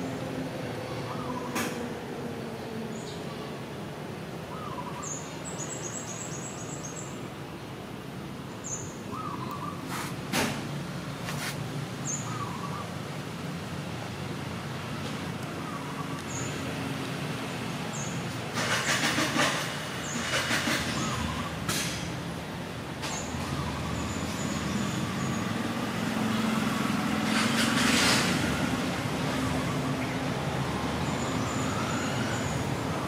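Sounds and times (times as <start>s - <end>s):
traffic background: 0.0s - 33.0s
vehicle engine hum: 9.6s - 33.0s.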